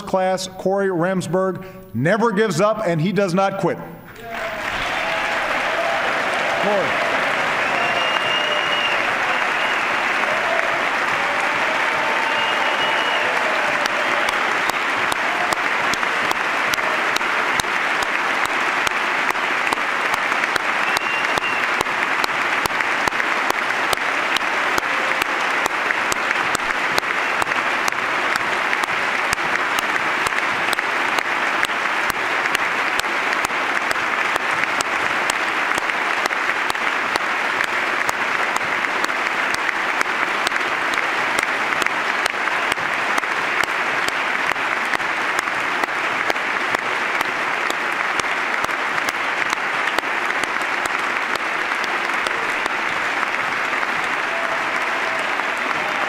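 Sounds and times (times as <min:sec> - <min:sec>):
large audience applauding: 0:04.1 - 0:56.0.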